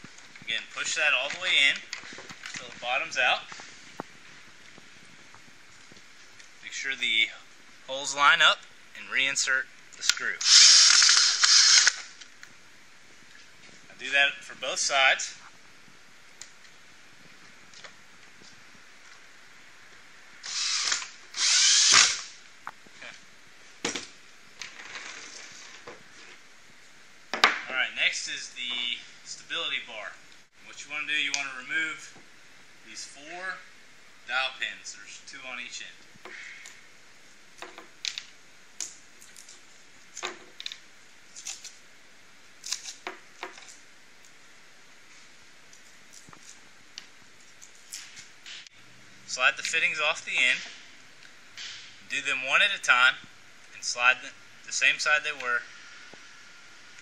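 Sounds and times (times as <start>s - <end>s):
cordless drill driving a screw: 10.4s - 12.2s, 20.4s - 22.3s.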